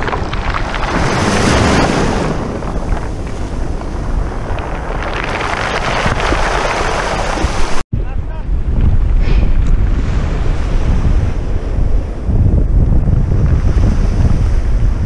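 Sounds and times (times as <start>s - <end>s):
small waves washing over pebbles: 0.0s - 7.8s
wind buffeting the microphone: 0.0s - 15.0s.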